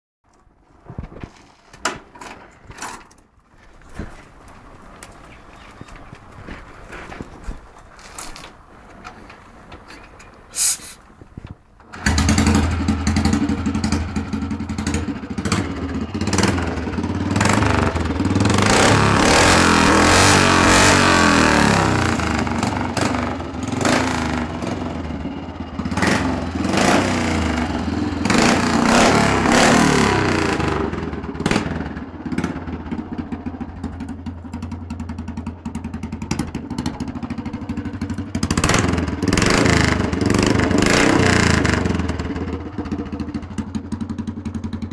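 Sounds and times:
loud motorcycle engine revving: 12.0s - 33.3s, 34.9s - 44.9s.

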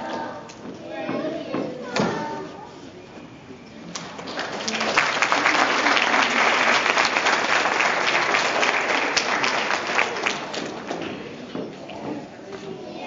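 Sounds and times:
audience applauding: 4.0s - 11.1s.

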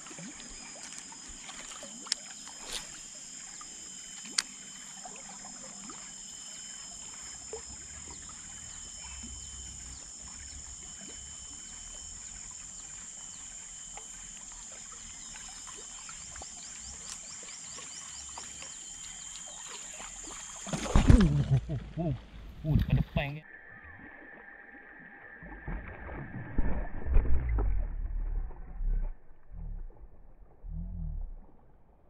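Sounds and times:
insects droning: 0.0s - 28.7s
faint clicks and ticks: 0.4s - 20.7s.

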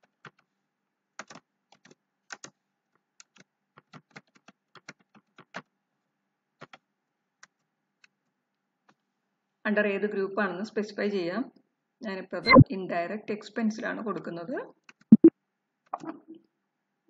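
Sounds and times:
computer keyboard typing: 1.2s - 2.5s, 3.2s - 5.7s.

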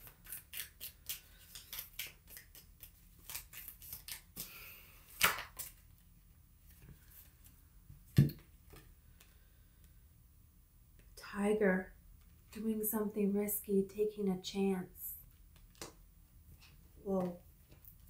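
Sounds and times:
cards shuffling: 0.0s - 6.0s.

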